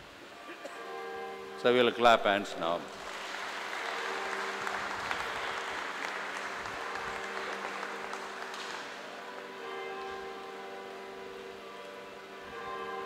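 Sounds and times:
audience applause: 2.9s - 10.5s.

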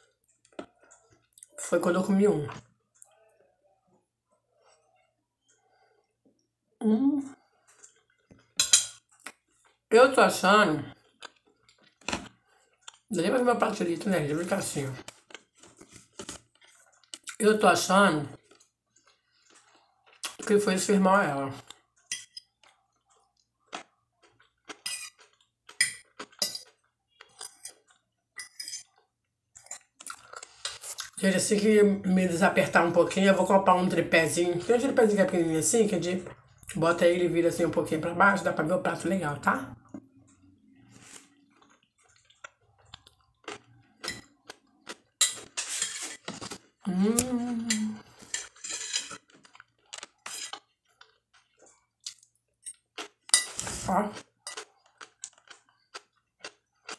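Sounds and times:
chewing food: 0.0s - 1.7s, 7.4s - 9.9s, 10.8s - 13.1s, 14.3s - 20.9s, 21.5s - 31.2s, 33.7s - 36.8s, 39.8s - 56.9s
fork scraping glass plate: 24.8s - 25.2s, 28.4s - 29.0s, 45.2s - 46.6s, 47.7s - 49.3s, 50.2s - 50.7s
person humming: 46.9s - 48.0s.

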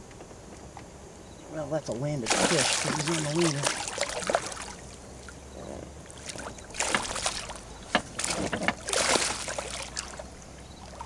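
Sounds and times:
fish splashing water: 2.2s - 11.0s.

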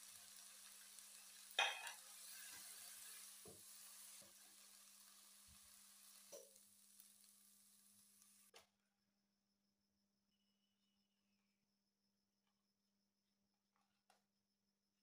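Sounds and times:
vegetables sizzling in wok: 0.0s - 8.5s
spatula scraping wok: 1.0s - 4.7s.

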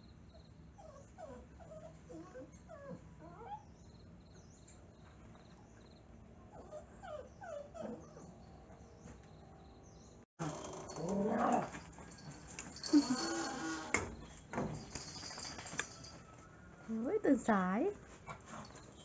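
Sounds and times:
small dogs whimpering: 0.8s - 3.8s, 6.5s - 8.5s, 10.4s - 14.0s.

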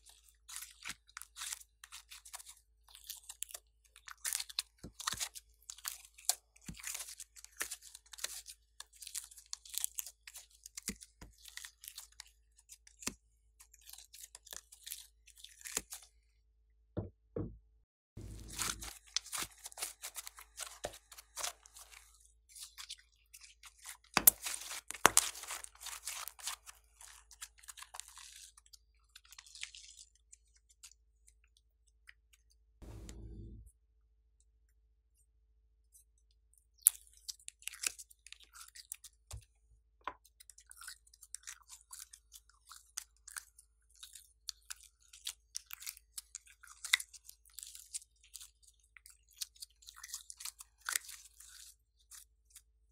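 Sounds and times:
low bump: 18.2s - 18.9s, 32.8s - 33.7s
slime crackling: 18.2s - 22.1s.

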